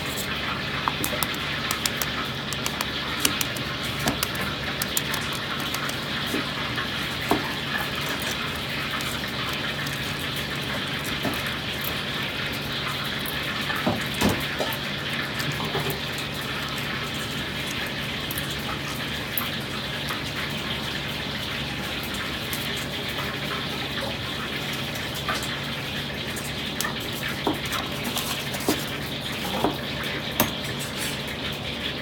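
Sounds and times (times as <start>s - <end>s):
egg shells cracking: 0.0s - 12.1s.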